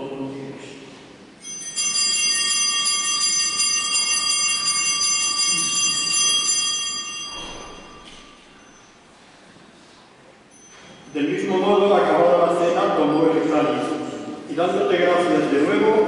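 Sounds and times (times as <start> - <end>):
altar bells ringing: 1.4 - 9.1, 10.5 - 13.5.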